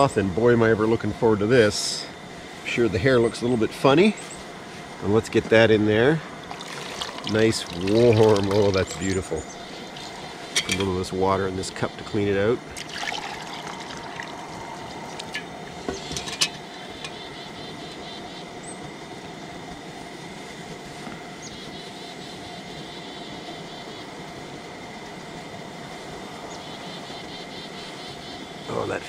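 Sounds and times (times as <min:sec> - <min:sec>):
steady rushing noise: 0:00.1 - 0:22.8
hot water pouring: 0:05.2 - 0:17.2
metal pot clinking against mug: 0:10.5 - 0:11.0, 0:15.3 - 0:17.2.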